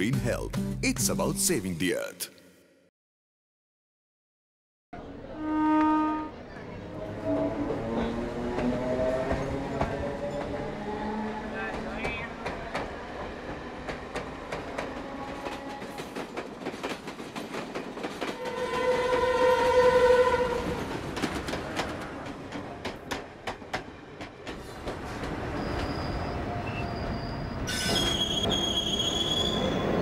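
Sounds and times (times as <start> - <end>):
train horn: 5.3 - 6.5, 18.4 - 20.8
train wheels clattering on track: 8.4 - 10.7, 11.7 - 19.3, 20.6 - 26.1
high-pitched wheel squeal: 25.6 - 30.0.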